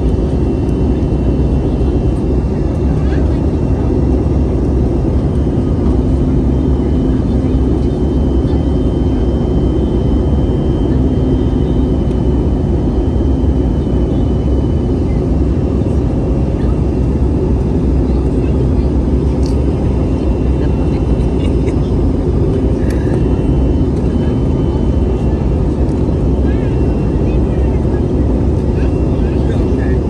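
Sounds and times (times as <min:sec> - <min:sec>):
jet engine and airflow roar: 0:00.0 - 0:30.0.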